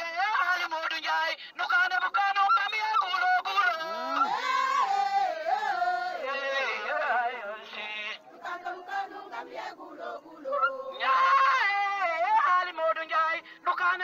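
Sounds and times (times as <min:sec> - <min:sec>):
scattered voices: 0:03.2 - 0:14.0
women singing a chant: 0:03.6 - 0:14.0.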